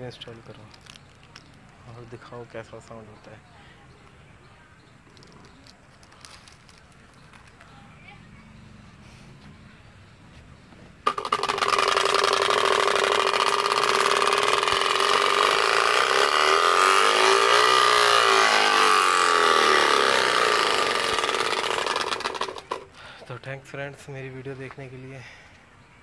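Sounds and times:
speaker playing motorcycle engine: 10.8s - 22.9s.

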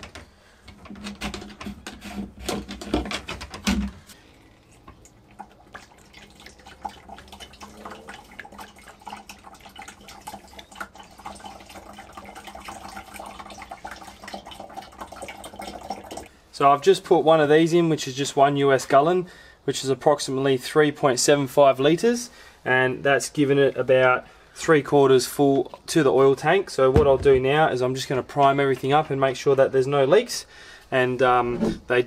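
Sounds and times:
sharp knocks and clicks: 0.0s - 4.0s
oil glugging through a funnel: 0.1s - 16.4s.

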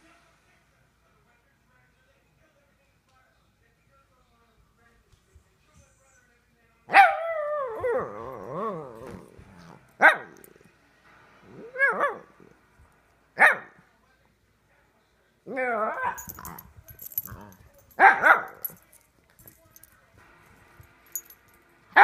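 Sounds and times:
puppy barking: 6.9s - 8.2s, 10.0s - 10.4s, 11.7s - 12.3s, 13.4s - 13.8s, 18.0s - 18.8s.

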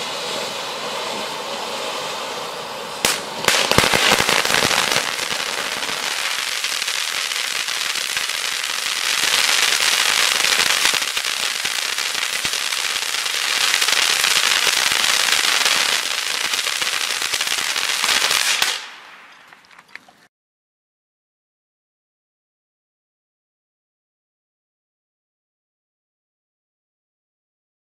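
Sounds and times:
firework fountain hissing and crackling: 0.0s - 19.5s.

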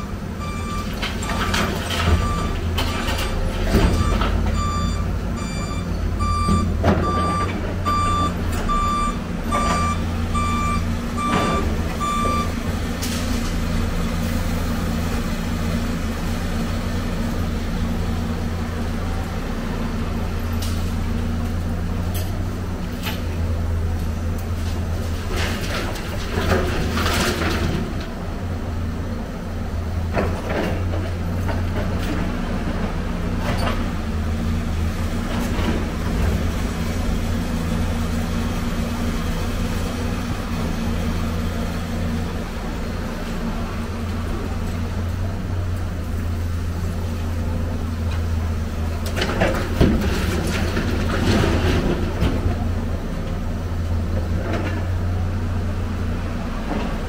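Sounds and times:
diesel excavator engine running: 0.0s - 57.0s
scrap metal clanking and scraping: 24.6s - 28.1s.

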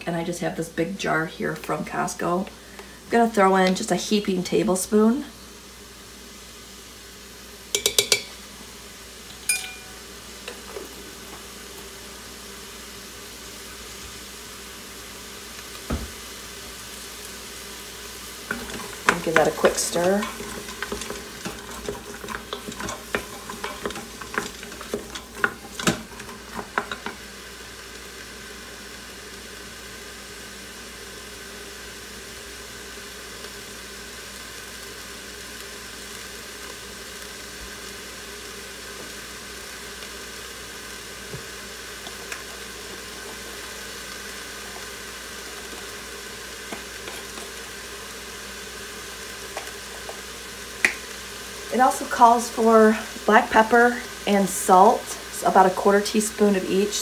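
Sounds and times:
vegetables sizzling in a pot: 0.0s - 57.0s
utensil scraping a metal pot: 18.5s - 27.2s.

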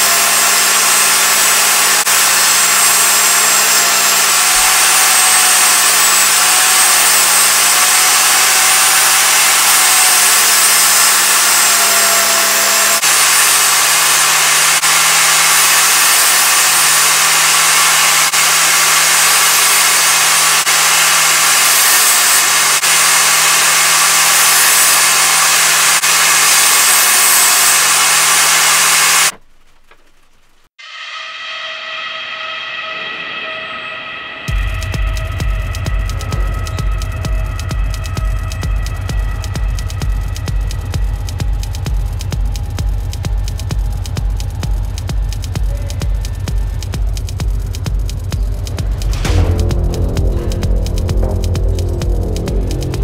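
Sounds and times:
table saw ripping wood: 0.0s - 30.0s.

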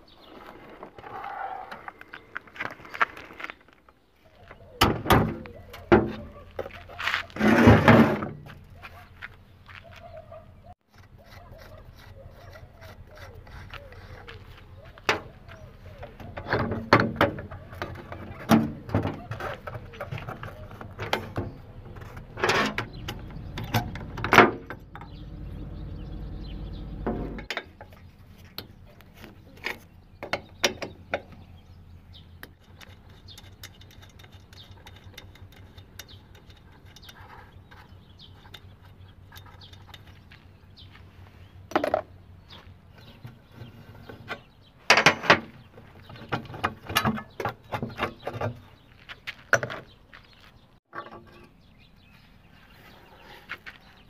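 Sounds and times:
hand tools clicking on metal: 32.4s - 40.4s.

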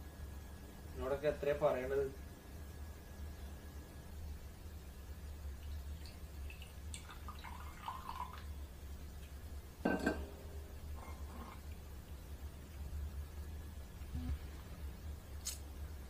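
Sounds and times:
liquid pouring into glass: 5.6s - 8.6s.

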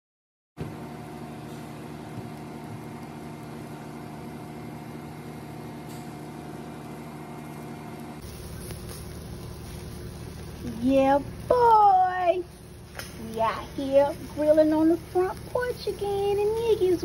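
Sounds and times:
machine humming: 0.6s - 17.0s.

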